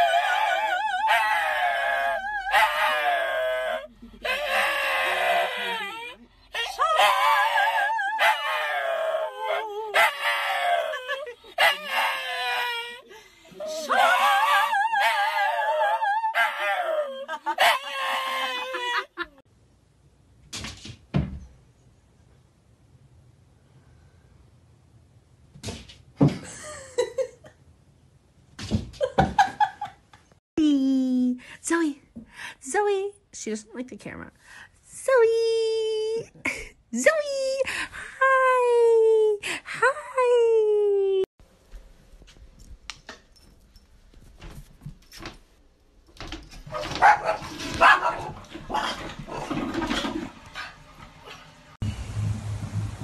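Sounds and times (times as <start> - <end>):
person laughing: 18.5 - 19.4
small dog barking: 46.7 - 48.9.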